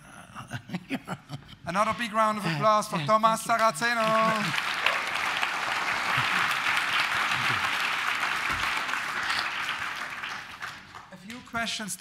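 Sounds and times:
audience applauding: 3.5s - 11.3s.

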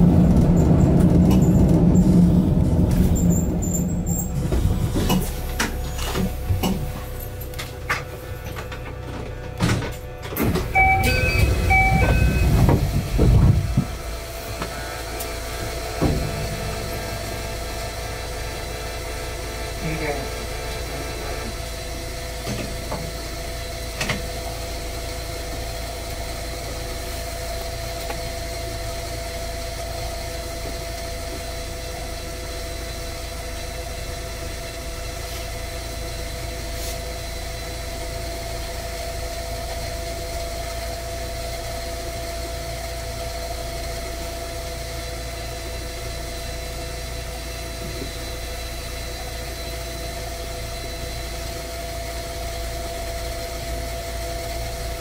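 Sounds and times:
low drone: 0.0s - 7.1s
train equipment humming tones: 0.0s - 55.0s.

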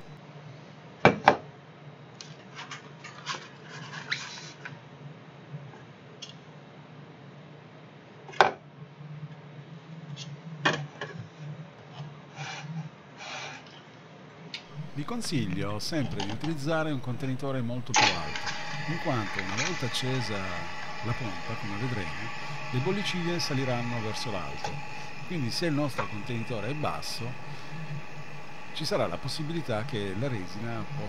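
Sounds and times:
plastic rubbing and scraping: 2.5s - 4.7s.

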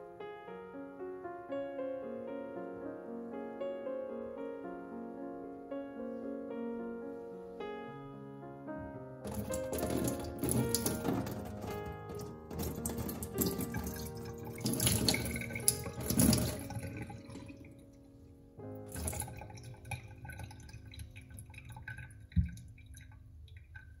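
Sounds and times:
background music: 0.0s - 20.8s
liquid splashing into a sink: 9.3s - 17.8s, 18.8s - 24.0s.

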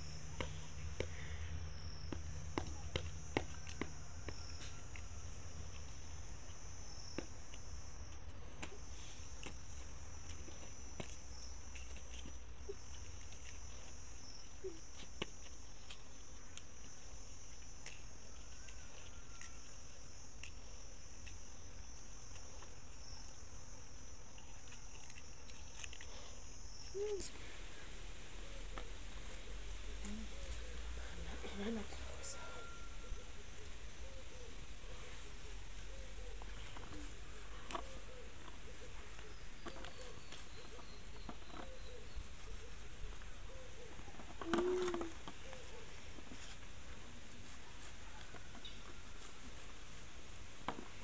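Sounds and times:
insects chirring: 0.0s - 51.0s
leaf stems snapping: 44.2s - 45.8s.

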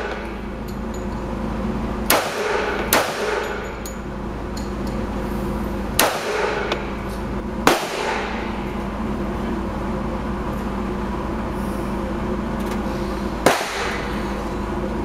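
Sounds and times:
steady low hum: 0.0s - 15.0s
pistol shots with echo: 2.1s - 3.6s, 6.0s - 6.8s, 7.6s - 8.4s, 13.4s - 14.0s.

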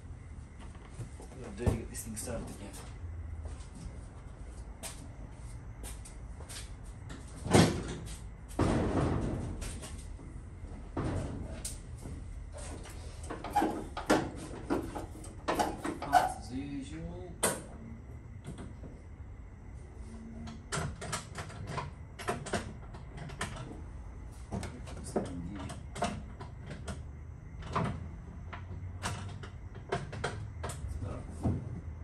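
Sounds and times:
knocks and clunks of handling: 7.1s - 16.4s, 24.4s - 31.9s.

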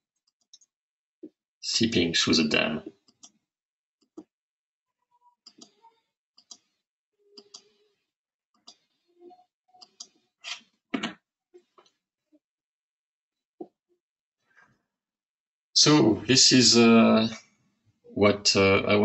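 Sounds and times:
computer mouse clicking: 7.4s - 7.8s.

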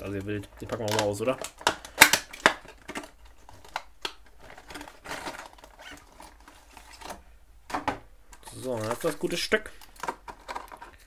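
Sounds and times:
plastic packaging crinkling: 0.0s - 7.3s, 8.3s - 11.0s.

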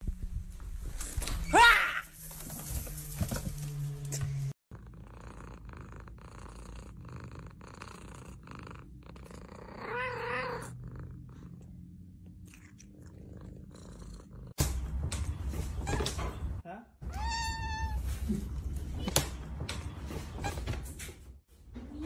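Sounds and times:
cat purring: 4.7s - 14.6s
cat meowing: 9.8s - 10.7s, 17.0s - 18.0s.

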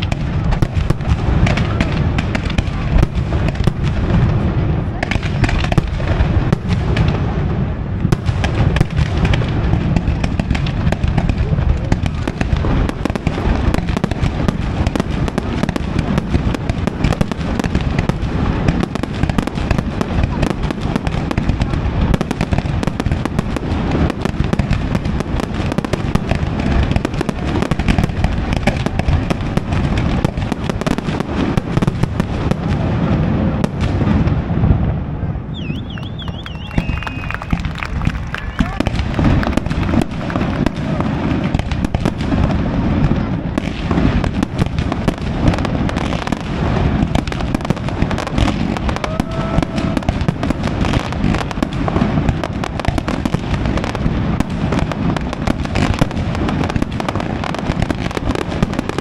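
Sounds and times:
fireworks bangs and crackling: 0.0s - 59.0s.

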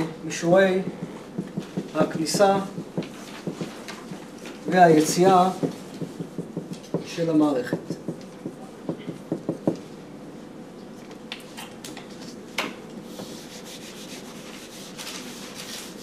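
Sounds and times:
faint steady hum: 0.0s - 16.0s
eraser rubbing whiteboard: 0.8s - 3.8s, 13.1s - 16.0s
marker scratching on whiteboard: 0.8s - 3.8s, 5.1s - 7.1s.

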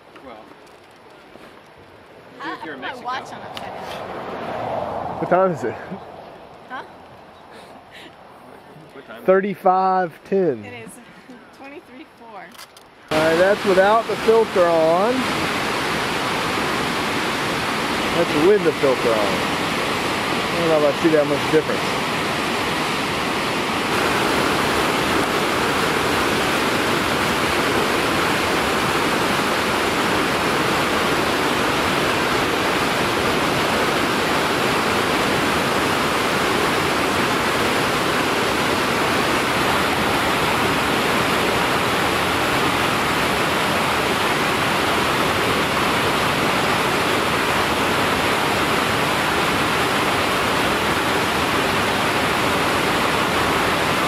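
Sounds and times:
river rapids rushing over rocks: 13.1s - 54.0s.

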